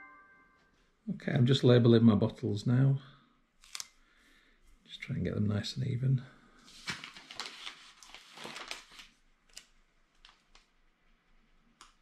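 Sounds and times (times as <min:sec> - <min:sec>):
labels peeled and pressed ticking: 0:03.6 - 0:04.0
paper sheet rustling: 0:06.6 - 0:10.7.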